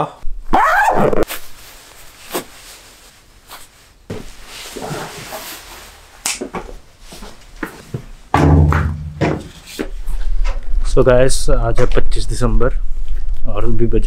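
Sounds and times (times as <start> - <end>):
bag zipper: 0.5 - 1.2
fabric rustling: 1.2 - 8.3.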